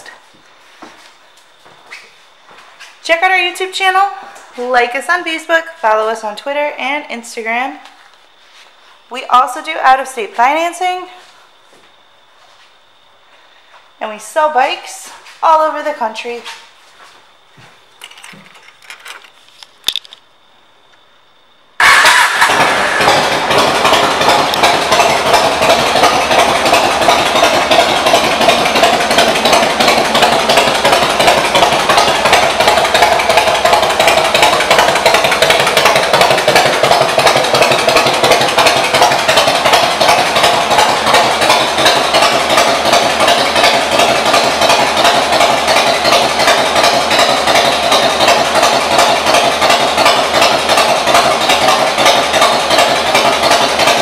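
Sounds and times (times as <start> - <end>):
motorcycle engine running: 21.8 - 54.0.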